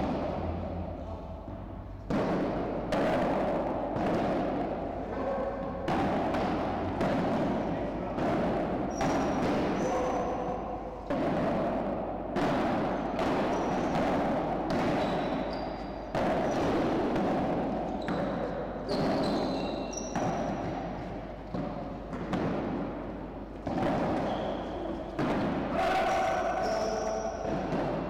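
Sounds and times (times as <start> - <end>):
ball struck by paddles: 0.0 - 0.7, 1.7 - 28.0
ball bouncing off walls: 1.6 - 28.0
shoes squeaking on court: 15.0 - 16.0, 17.9 - 21.5, 23.6 - 25.2.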